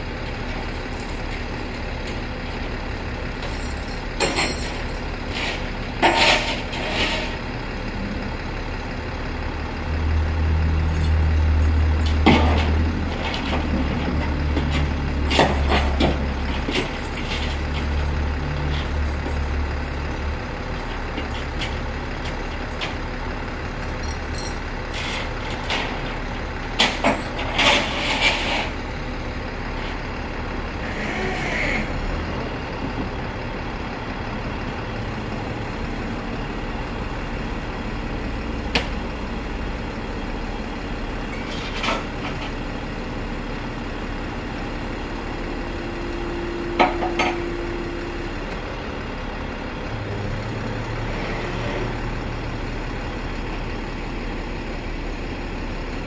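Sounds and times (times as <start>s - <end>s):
truck engine running: 0.0s - 56.0s
metallic clanks of chain: 2.8s - 7.4s, 23.7s - 25.9s.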